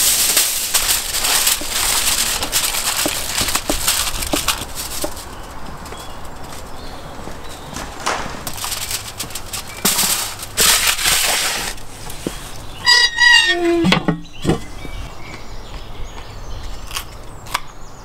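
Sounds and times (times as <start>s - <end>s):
foil tray scraping into oven: 0.0s - 6.7s, 7.8s - 13.9s
metal oven door squealing: 12.8s - 14.2s.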